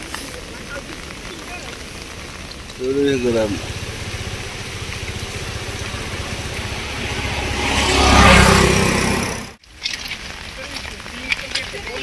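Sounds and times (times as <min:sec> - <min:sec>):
motorbike engine passing by: 0:02.6 - 0:09.6.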